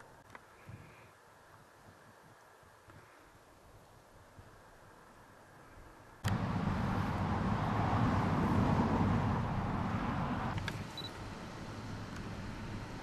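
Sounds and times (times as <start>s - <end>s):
passing motor vehicle rumble: 6.2s - 13.0s.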